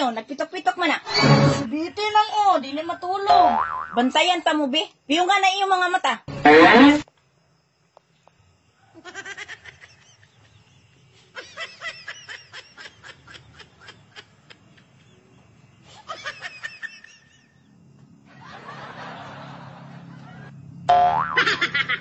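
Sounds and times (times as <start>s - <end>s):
giggling laughter: 8.9s - 15.2s, 15.9s - 17.7s, 18.3s - 20.6s.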